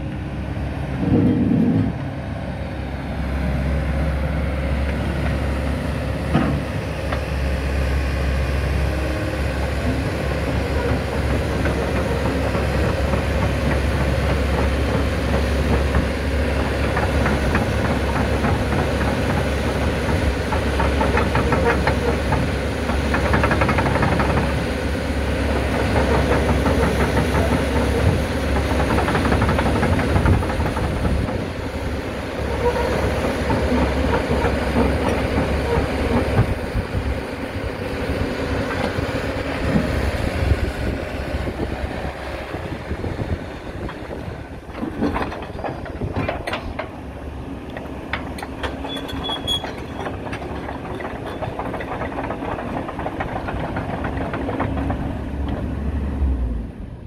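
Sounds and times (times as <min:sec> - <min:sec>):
excavator diesel engine running: 0:00.0 - 0:57.0
mechanical clatter: 0:47.7 - 0:55.6.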